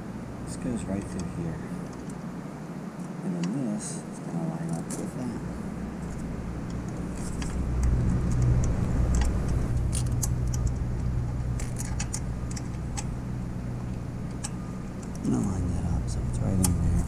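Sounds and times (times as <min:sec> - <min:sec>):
low steady rumble: 0:00.0 - 0:17.0
small metallic clicks and jingles: 0:06.0 - 0:13.1.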